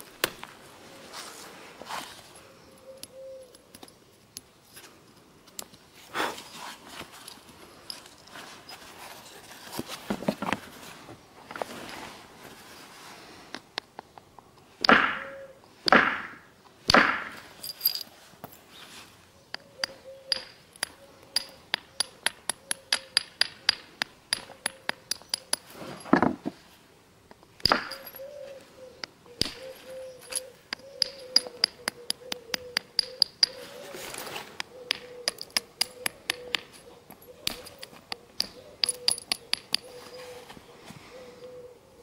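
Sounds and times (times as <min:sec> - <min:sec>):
heavy knocks on flint: 0:14.8 - 0:18.0, 0:27.6 - 0:28.2.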